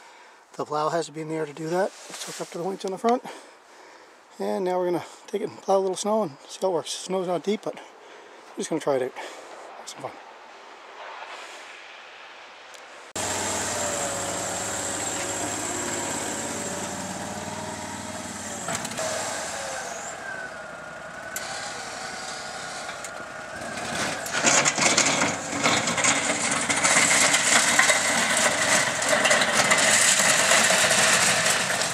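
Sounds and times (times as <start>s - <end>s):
plow pushing snow: 13.2s - 31.9s
rapid crackling: 13.2s - 31.9s
vehicle engine running: 13.2s - 31.9s.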